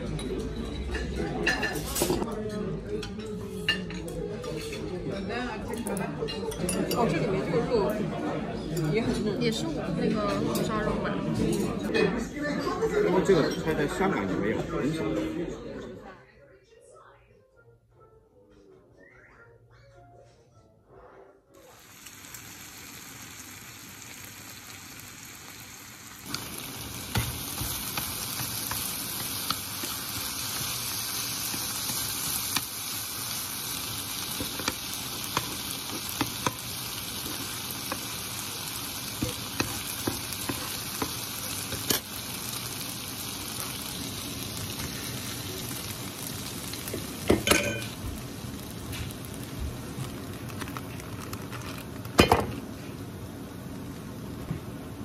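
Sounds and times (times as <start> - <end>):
food sizzling in a frying pan: 21.6 - 55.0.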